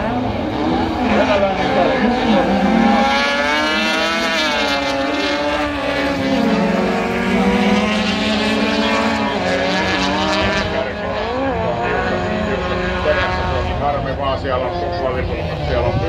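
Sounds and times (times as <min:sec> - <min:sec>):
racing car engines revving: 0:00.0 - 0:16.0.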